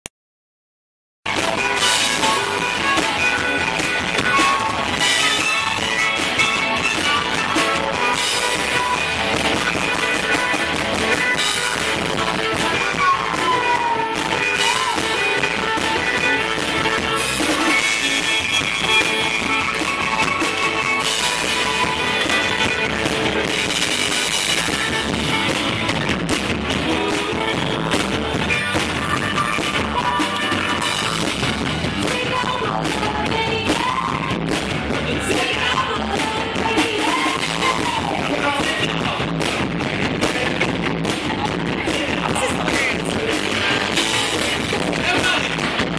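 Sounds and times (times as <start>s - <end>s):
drum kit: 1.3s - 45.9s
electric guitar: 1.3s - 45.9s
man singing: 1.4s - 19.5s, 26.8s - 31.3s, 35.0s - 45.7s.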